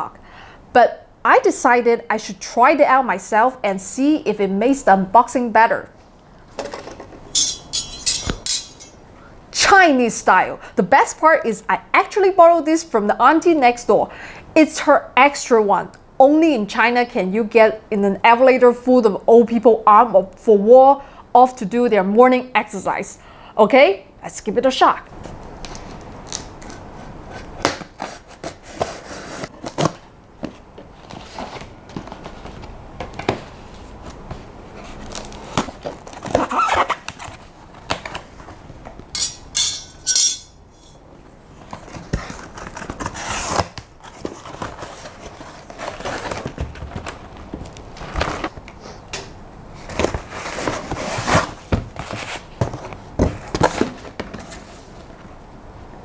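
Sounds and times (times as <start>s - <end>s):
packaging rustling and bumping: 25.2s - 38.6s, 41.6s - 48.6s.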